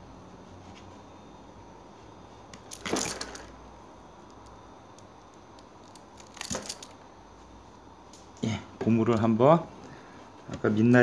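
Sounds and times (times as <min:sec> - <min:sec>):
multitool metallic clinking: 0:02.6 - 0:03.6, 0:05.8 - 0:07.0.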